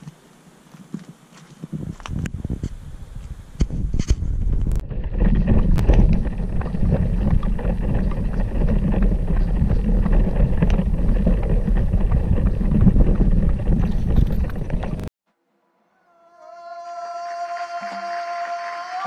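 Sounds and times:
wind rumbling on microphone: 1.0s - 15.1s.

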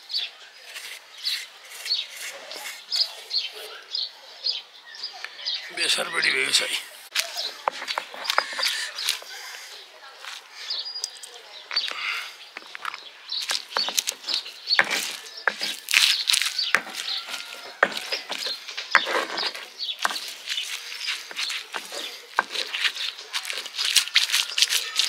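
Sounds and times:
stone scraping on stone: 0.6s - 3.5s, 7.5s - 9.2s, 12.6s - 25.0s
crunching and squelching: 7.1s - 9.4s, 10.2s - 25.0s.

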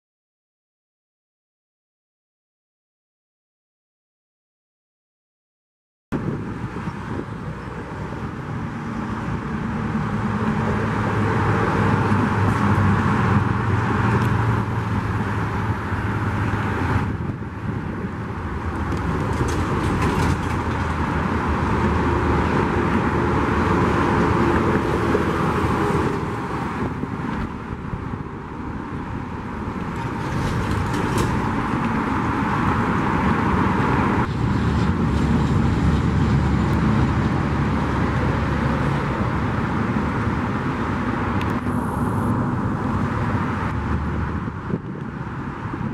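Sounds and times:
freeway traffic rushing: 6.1s - 45.9s
low engine drone: 6.2s - 45.9s.

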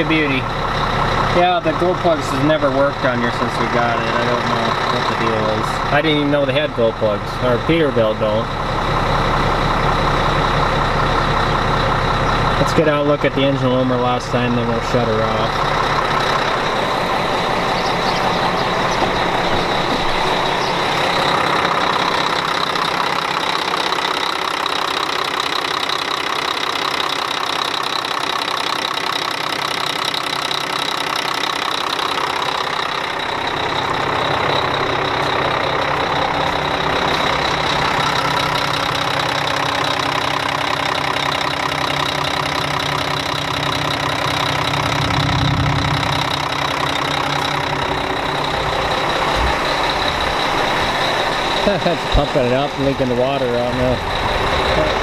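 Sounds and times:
truck diesel engine idling: 0.0s - 55.0s
deep low rumble: 14.9s - 22.2s, 43.6s - 51.0s.

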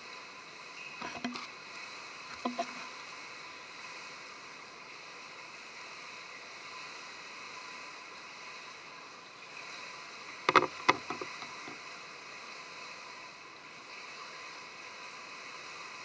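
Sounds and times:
indoor swimming pool hiss: 0.0s - 16.0s
diving mask clicks and knocks: 2.4s - 2.8s, 10.5s - 11.8s.

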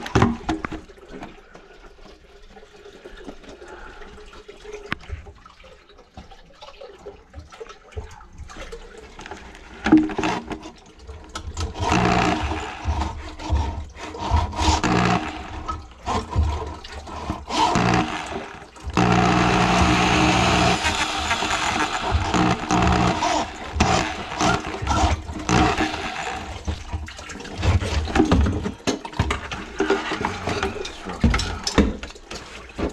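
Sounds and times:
wet sloshing: 6.7s - 32.9s
electric drill motor running: 11.8s - 13.6s, 14.3s - 16.4s, 17.2s - 26.8s.

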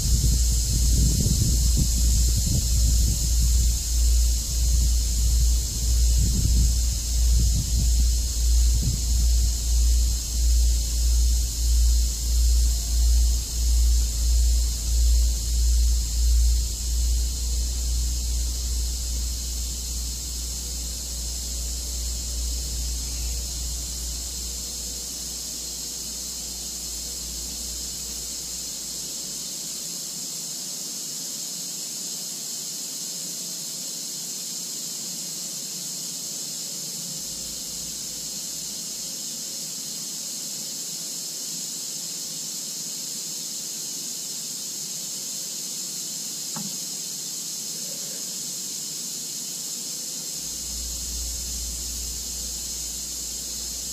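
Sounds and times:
low rumble: 0.0s - 20.0s
high-pitched hiss: 0.0s - 53.9s
faint tap: 46.5s - 46.8s.

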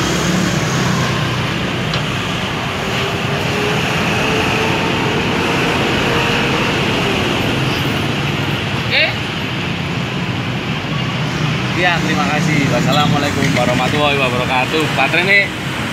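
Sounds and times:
diesel engine running steadily: 0.0s - 11.8s.

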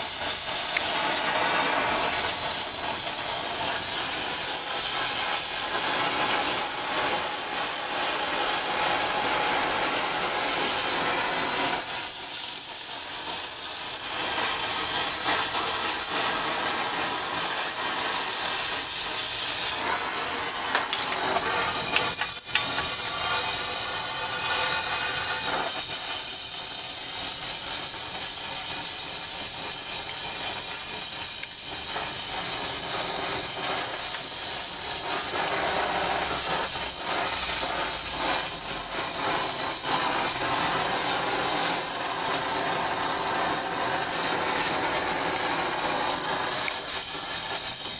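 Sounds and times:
torch flame hissing: 0.0s - 47.9s.

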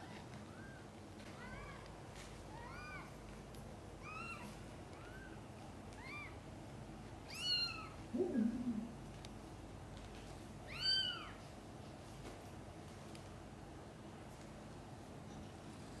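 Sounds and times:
kitten mewing: 7.3s - 9.0s.

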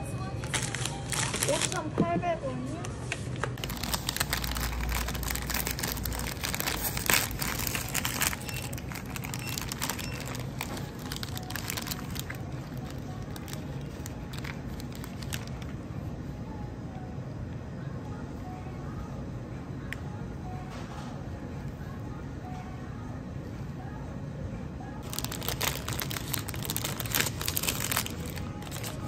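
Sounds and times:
plastic wrapper crinkling: 0.4s - 1.8s, 3.4s - 15.8s, 25.0s - 29.0s.

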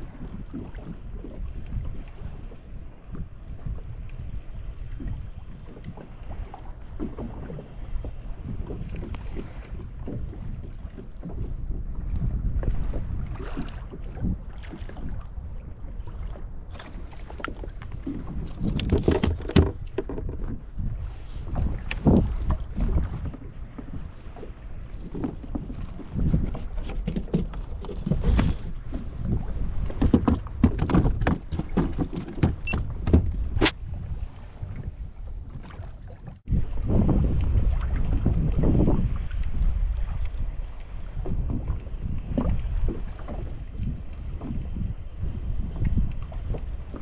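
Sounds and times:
water lapping at hull: 0.0s - 47.0s
wind buffeting microphone: 0.0s - 47.0s
sharp clicks and knocks: 18.5s - 20.4s, 30.0s - 33.8s.

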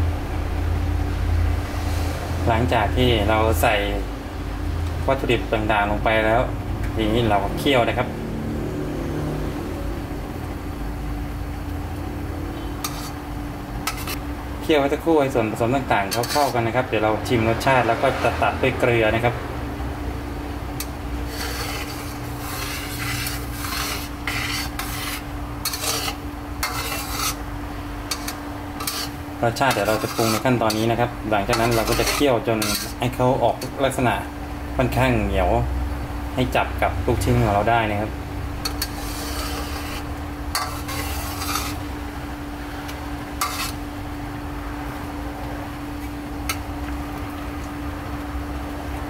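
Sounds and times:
steady low hum: 0.0s - 49.0s
metal spatula scraping a wok: 12.6s - 14.2s, 16.0s - 16.8s, 20.8s - 27.4s, 28.1s - 33.8s, 38.6s - 41.9s, 43.4s - 43.9s
sauce simmering: 38.6s - 49.0s.

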